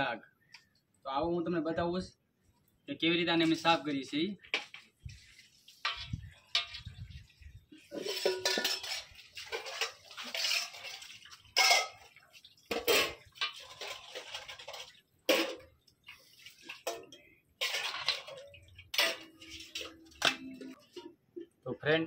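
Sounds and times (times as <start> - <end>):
water splashing in a bowl: 4.4 - 21.5
clinks against metal bowl: 7.9 - 10.0, 11.6 - 12.0.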